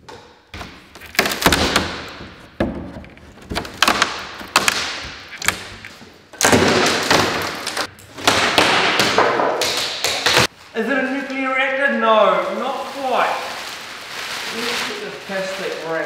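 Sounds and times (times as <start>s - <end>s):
crate knocks and thuds: 0.6s - 5.8s.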